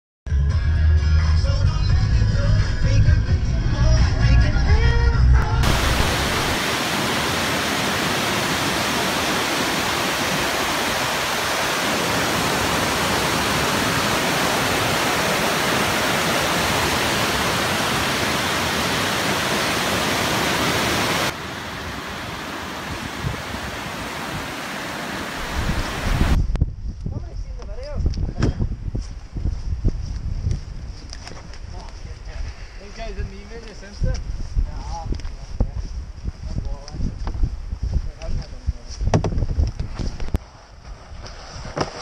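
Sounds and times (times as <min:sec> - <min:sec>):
water rushing over a weir: 0:05.6 - 0:26.4.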